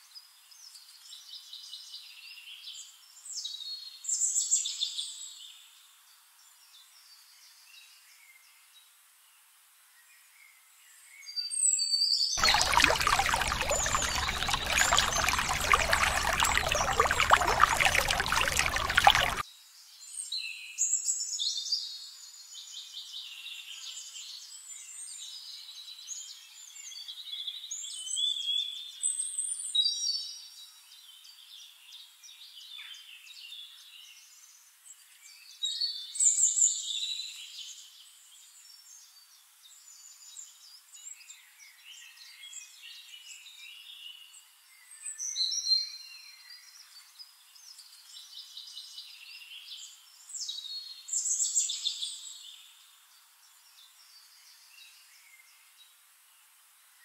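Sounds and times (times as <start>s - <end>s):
songbirds chirping and trilling: 12.4s - 19.4s.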